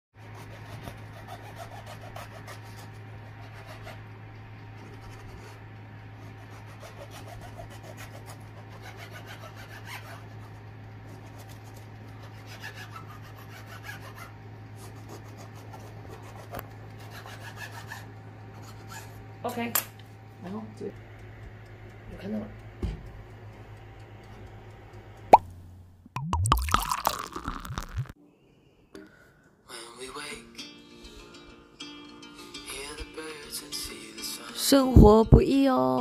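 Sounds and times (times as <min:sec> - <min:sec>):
knife sawing through bread: 0:00.2 - 0:04.1, 0:04.8 - 0:19.2
steady low hum: 0:18.0 - 0:28.2.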